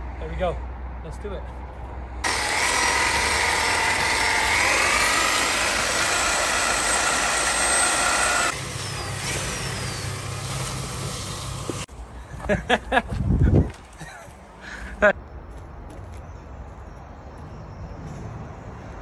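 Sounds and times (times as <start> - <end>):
electric paddle mixer whirring: 2.2 - 11.9.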